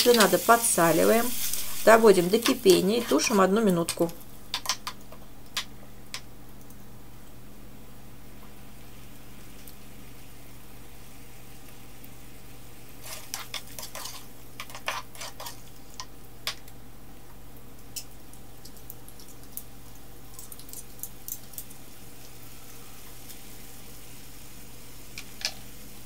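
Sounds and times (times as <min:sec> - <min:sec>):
sauce bubbling in frying pan: 0:00.0 - 0:03.4, 0:17.6 - 0:26.0.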